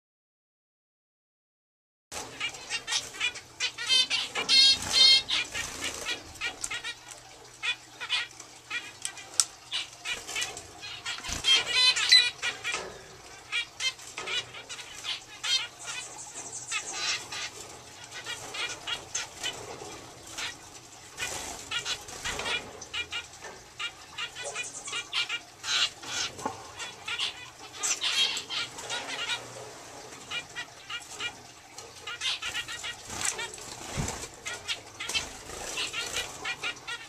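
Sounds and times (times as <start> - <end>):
finches chirping: 2.4 - 19.6, 23.8 - 29.4, 32.1 - 37.0.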